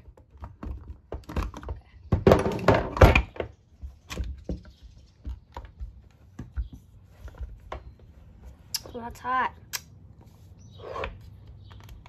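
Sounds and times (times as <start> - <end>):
plastic housing knocks and clatter: 0.0 - 7.9.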